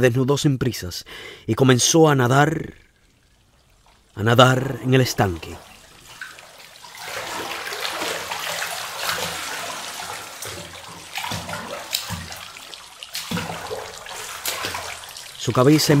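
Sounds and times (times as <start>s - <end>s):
cloth sloshing in bathtub water: 3.0s - 16.0s.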